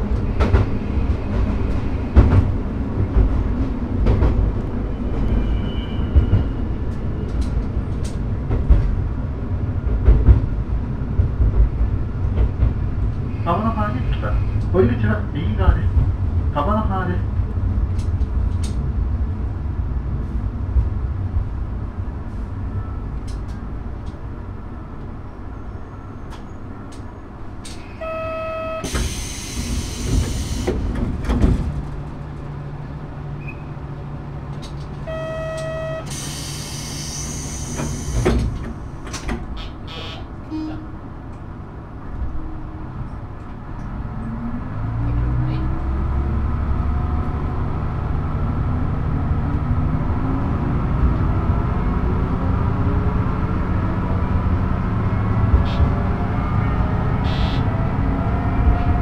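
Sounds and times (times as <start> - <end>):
diesel train engine humming: 0.0 - 59.0
short beep: 28.0 - 28.9, 35.0 - 36.2
air hiss of train doors: 28.8 - 31.0, 36.0 - 40.3, 57.2 - 57.7.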